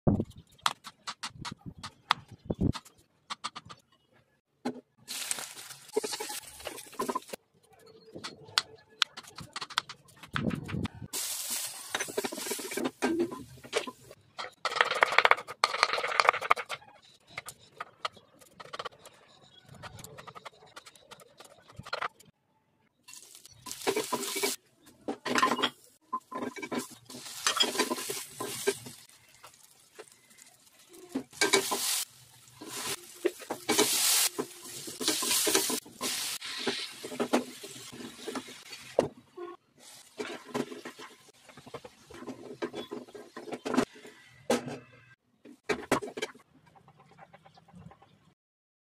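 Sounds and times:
food sizzling: 5.0s - 7.4s, 11.1s - 14.2s, 23.1s - 24.6s, 25.9s - 39.0s, 39.8s - 42.2s
spatula scraping a pan: 23.2s - 24.6s, 25.3s - 38.9s.

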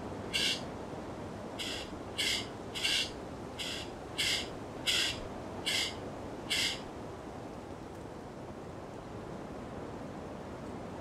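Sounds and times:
birds calling: 0.3s - 0.6s, 1.6s - 6.8s.

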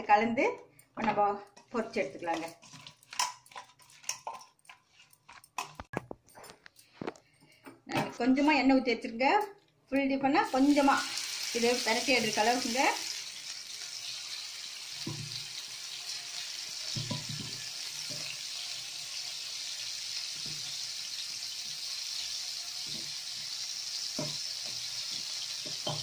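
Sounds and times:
fish sizzling in hot oil: 10.5s - 26.0s.

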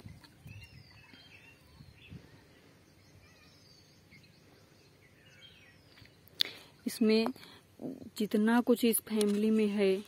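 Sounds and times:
faint bird chirps: 0.0s - 8.0s.

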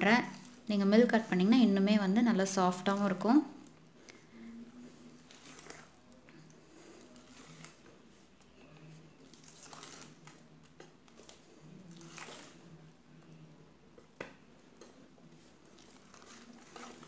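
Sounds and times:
whisk stirring thick batter: 4.7s - 12.6s, 14.8s - 17.0s.

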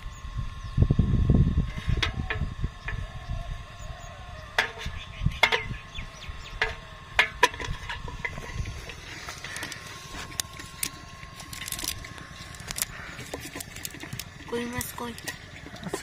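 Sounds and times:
clicks and taps on metal bucket: 4.6s - 5.8s, 6.6s - 9.8s, 12.6s - 16.0s.

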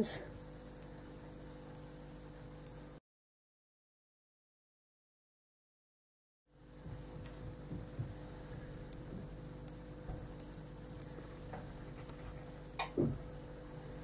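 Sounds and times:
low electrical hum: 0.0s - 3.0s, 6.5s - 14.0s.

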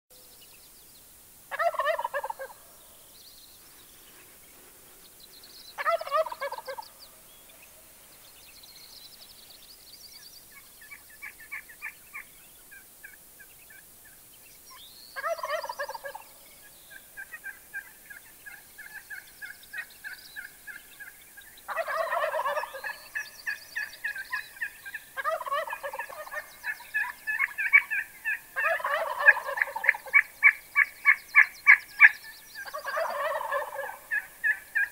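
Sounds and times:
turkey gobbling: 1.5s - 2.6s, 5.8s - 7.0s, 15.2s - 16.2s, 17.2s - 21.1s, 21.7s - 34.9s.

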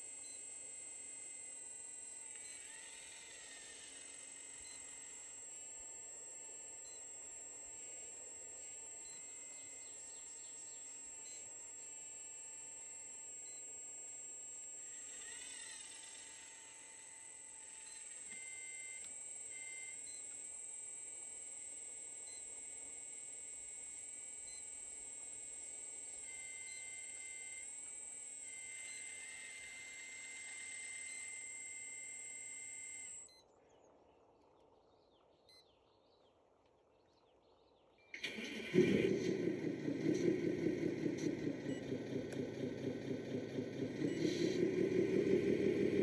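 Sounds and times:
faint bird chirps: 9.1s - 11.4s
hydraulic pump whining: 38.2s - 46.0s.

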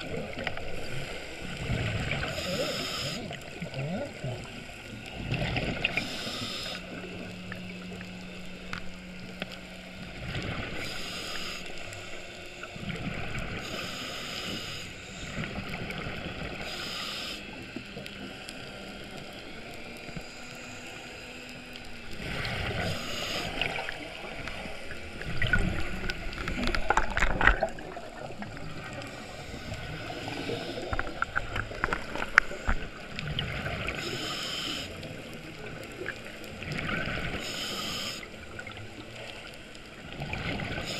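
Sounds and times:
regulator breathing hiss: 2.1s - 3.4s, 5.8s - 7.3s, 10.6s - 12.7s, 13.4s - 15.6s, 16.6s - 17.8s, 22.2s - 24.6s, 28.9s - 33.1s, 33.9s - 35.6s, 37.3s - 38.6s
exhaled bubbles bubbling: 22.1s - 34.2s, 35.4s - 37.4s.

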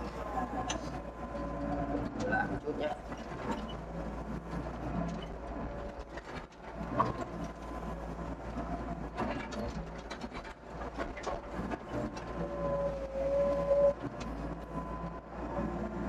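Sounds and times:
excavator diesel engine hum: 0.0s - 16.0s
held whine: 11.7s - 16.0s.

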